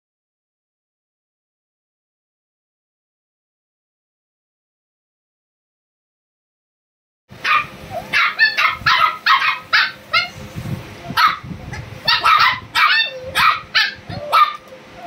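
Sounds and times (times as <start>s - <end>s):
puppies yapping: 7.4s - 10.4s, 11.1s - 15.0s.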